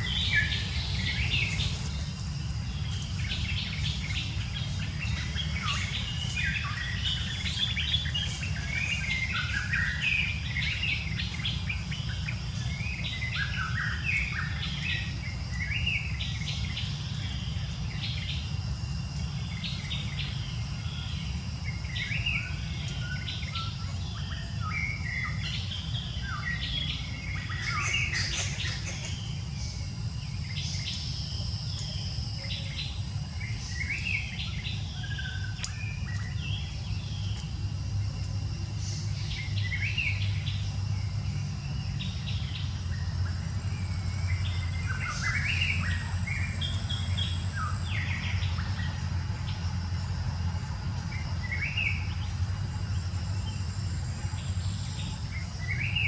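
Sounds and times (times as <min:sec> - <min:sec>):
birds chirping: 0:00.0 - 0:56.0
faint insect whine: 0:00.0 - 0:56.0.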